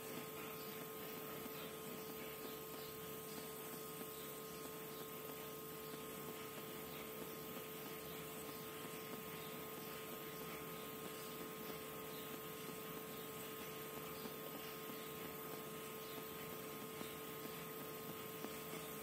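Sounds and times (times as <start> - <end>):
faint hum: 0.0 - 19.0.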